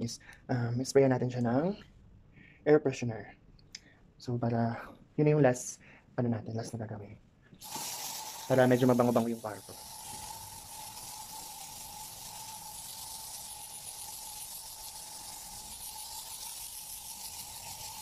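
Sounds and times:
aerosol can spraying hiss: 7.6s - 18.0s.

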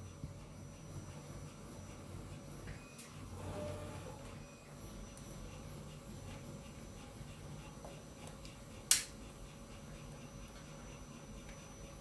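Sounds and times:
printers humming: 0.0s - 12.0s
sharp click: 8.9s - 9.2s.

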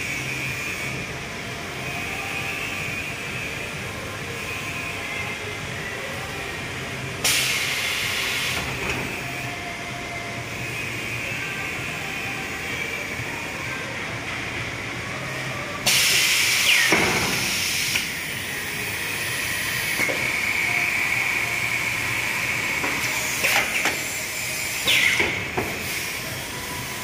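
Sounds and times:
machine high whine: 0.0s - 27.0s
air hiss: 7.2s - 8.8s, 15.8s - 27.0s.

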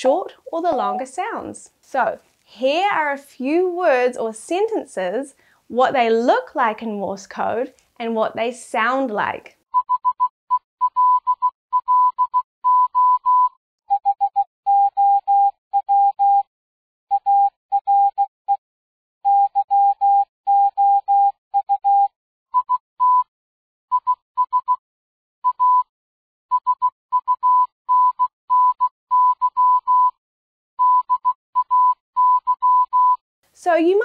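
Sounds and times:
morse code beeps: 0.7s - 1.1s, 9.8s - 16.5s, 17.1s - 18.2s, 19.3s - 23.3s, 25.4s - 25.9s, 26.5s - 30.2s, 30.8s - 33.2s.

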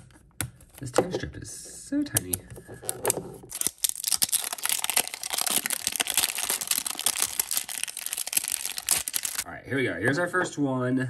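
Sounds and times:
shrink-wrap crinkling and tearing: 3.0s - 9.5s.

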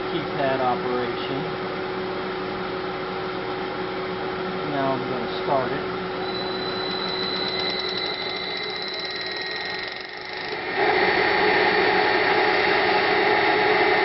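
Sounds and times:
electrical whine from drive: 0.0s - 14.0s
electric motor humming: 6.2s - 14.0s.

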